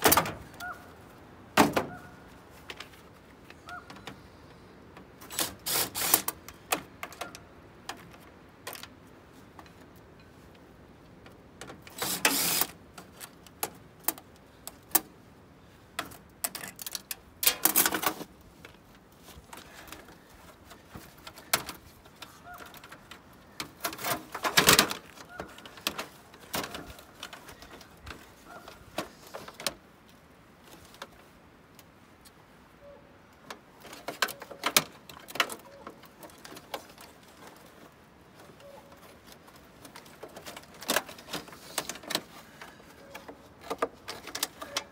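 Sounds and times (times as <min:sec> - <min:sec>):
clicks and rattles of metal panels: 0:00.0 - 0:00.7, 0:16.0 - 0:18.3, 0:19.5 - 0:29.8, 0:33.4 - 0:37.6, 0:38.4 - 0:44.9.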